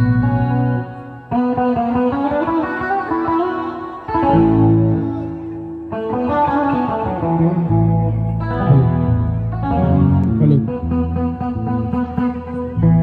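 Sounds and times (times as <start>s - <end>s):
electric guitar sustained notes: 0.0s - 13.0s
deep low notes: 7.6s - 12.1s.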